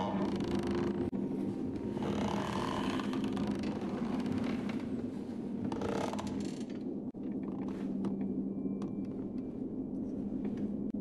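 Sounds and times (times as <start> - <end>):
clicks and creaks: 0.0 - 1.1, 2.0 - 5.0, 5.6 - 9.5
low mechanical hum: 0.0 - 11.0.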